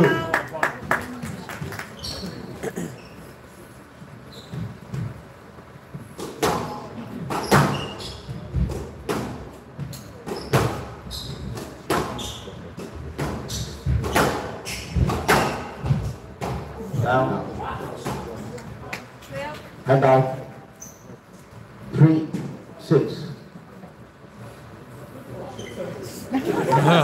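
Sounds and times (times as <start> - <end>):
shoes squeaking on court floor: 1.9 - 6.2, 7.2 - 8.8, 9.8 - 16.2, 20.7 - 21.8, 25.4 - 26.1.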